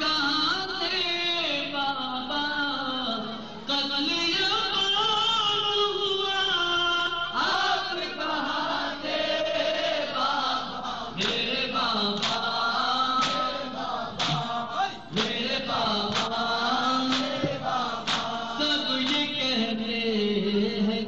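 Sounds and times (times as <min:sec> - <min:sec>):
man chanting into a microphone: 0:00.0 - 0:09.1, 0:10.1 - 0:21.0
rhythmic chest-beating: 0:09.2 - 0:19.6.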